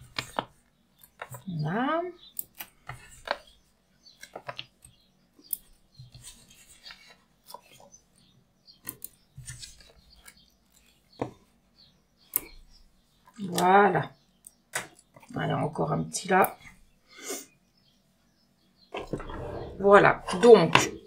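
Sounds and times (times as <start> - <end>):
small clicks and taps: 4.2 - 7.8, 12.3 - 12.6.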